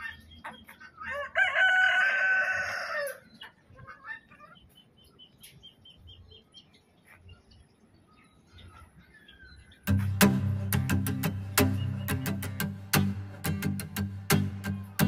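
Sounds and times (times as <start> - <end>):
rooster crowing: 1.1 - 3.3.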